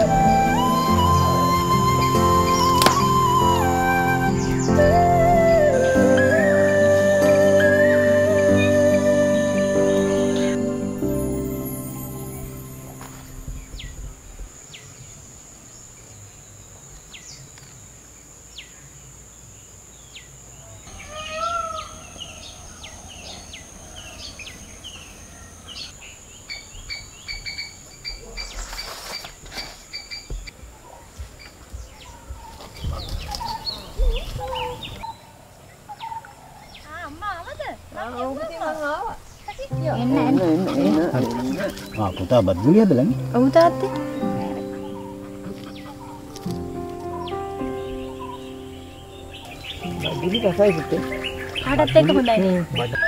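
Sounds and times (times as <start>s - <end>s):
birds calling and chirping: 0.0s - 18.9s, 20.0s - 53.0s
high insect drone: 0.0s - 30.5s, 36.4s - 53.0s
rustling: 28.2s - 35.1s.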